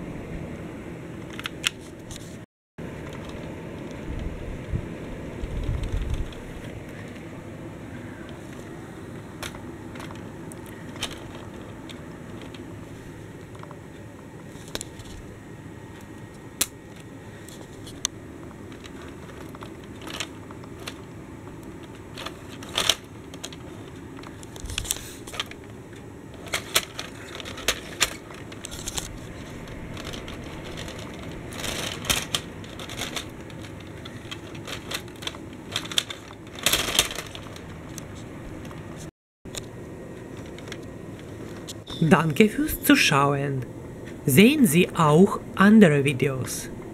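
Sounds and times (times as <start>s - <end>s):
toy train rolling on plastic track: 29.9s - 37.6s.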